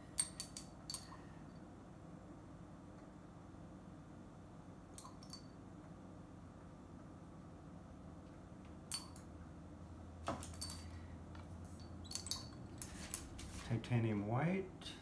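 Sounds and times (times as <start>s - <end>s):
low steady hum: 0.0s - 15.0s
tool handles clinking on glass jars: 10.4s - 11.0s, 11.8s - 12.6s.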